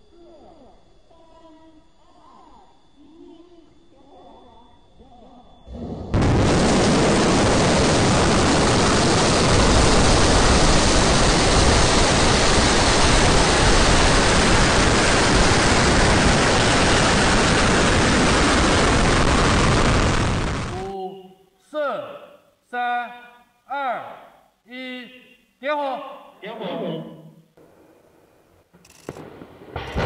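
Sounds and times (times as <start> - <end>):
rocket engine exhaust roar: 5.7 - 20.9.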